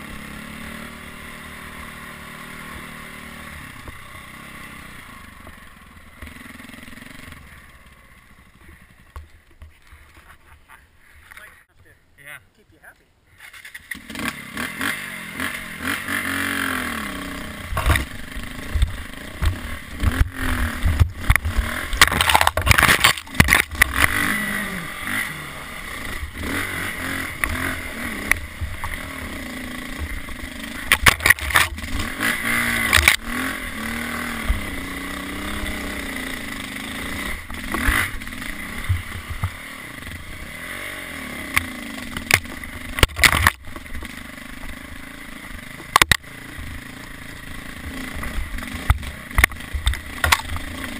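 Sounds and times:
dirt bike engine revving: 0.0s - 9.1s, 13.3s - 50.9s
sharp knocks and rattles: 17.7s - 24.2s, 29.9s - 33.3s, 41.5s - 44.2s.

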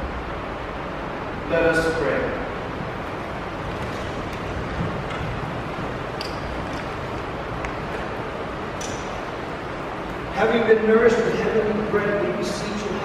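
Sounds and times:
room noise: 0.0s - 13.0s
people shuffling: 2.7s - 8.7s
chairs knocking: 3.6s - 8.2s.

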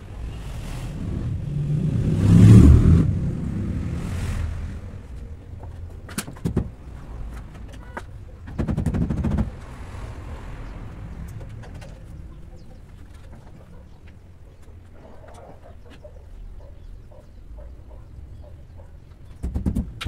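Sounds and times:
low background rumble: 0.0s - 15.0s
sharp clicks and knocks: 5.6s - 9.6s, 11.2s - 14.9s, 19.1s - 20.0s.

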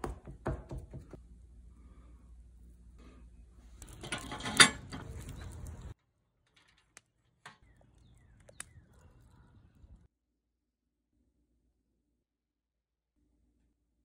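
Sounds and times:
wire grill basket rattling: 3.8s - 7.9s.

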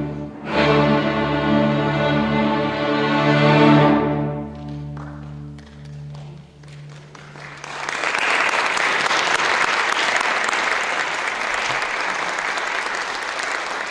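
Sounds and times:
string orchestra low chord: 0.0s - 7.6s
audience applause: 5.0s - 13.9s.

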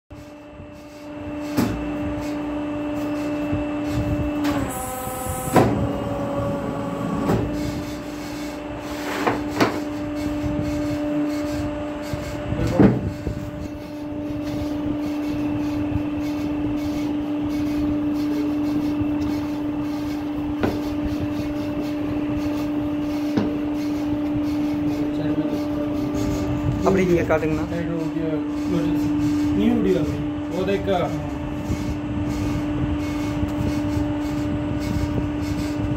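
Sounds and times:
hydraulic pump motor humming: 0.2s - 35.9s.

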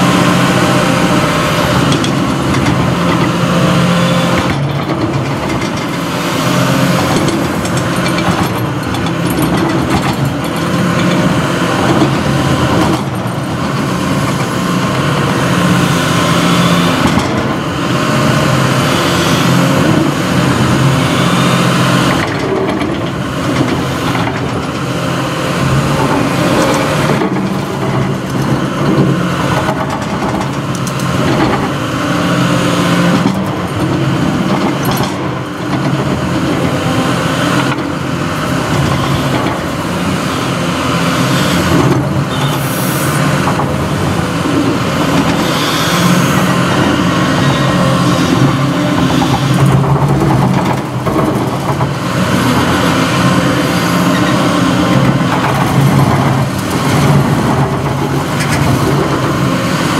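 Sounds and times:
excavator diesel engine running: 0.0s - 59.9s.

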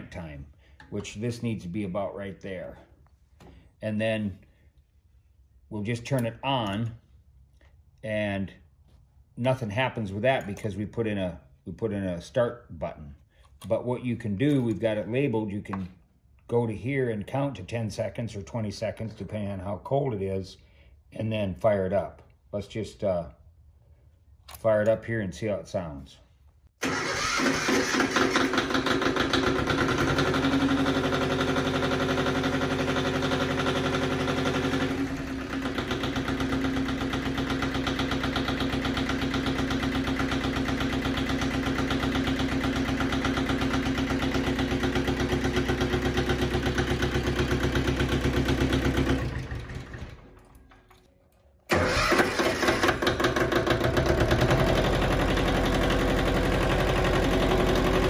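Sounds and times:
tractor diesel engine running: 26.8s - 50.7s, 51.7s - 58.0s.

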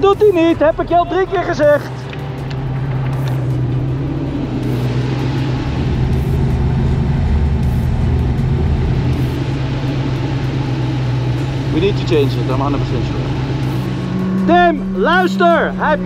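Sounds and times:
car engine humming from inside: 0.0s - 16.0s.

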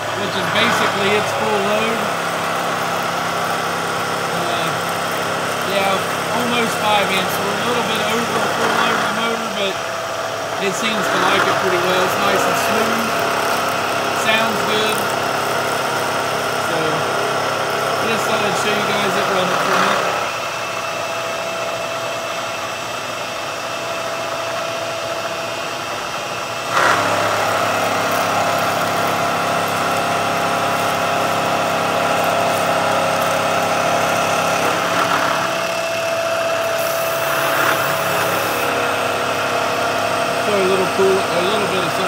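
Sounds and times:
milling machine cutting metal: 0.0s - 42.0s.

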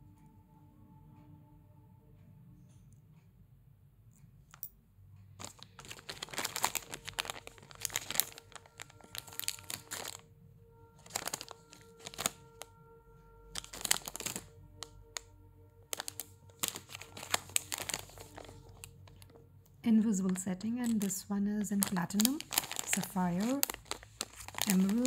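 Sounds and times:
faint background music: 0.0s - 25.0s
plastic packets crinkling: 5.4s - 10.2s, 11.0s - 12.7s, 13.5s - 15.3s, 15.9s - 19.4s, 20.1s - 25.0s.

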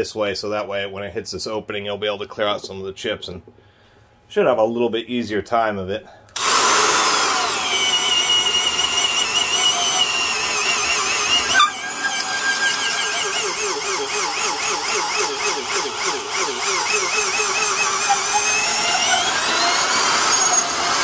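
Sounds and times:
drill boring into wood: 6.4s - 21.0s.

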